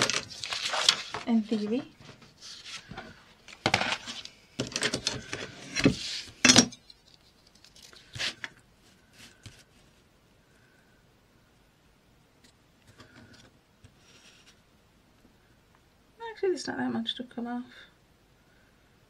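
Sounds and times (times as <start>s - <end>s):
tools clattering on desk: 0.0s - 0.3s, 3.6s - 7.2s
paper rustling: 0.0s - 4.3s.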